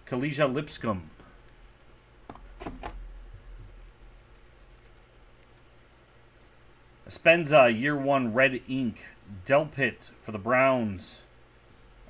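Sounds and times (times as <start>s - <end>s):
faint handling clicks and rustles: 1.1s - 6.8s.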